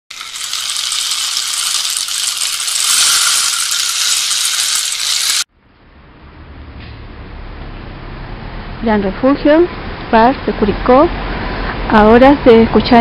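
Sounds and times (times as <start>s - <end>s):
bright hiss: 0.1s - 5.5s.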